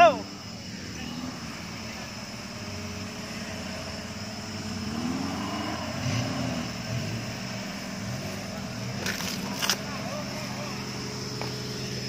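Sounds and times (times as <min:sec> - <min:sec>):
off-road vehicle engine in mud: 0:00.0 - 0:12.0.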